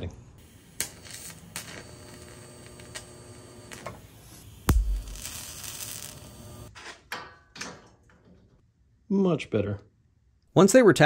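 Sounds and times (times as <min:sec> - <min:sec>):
welding arc humming: 0:00.4 - 0:06.7.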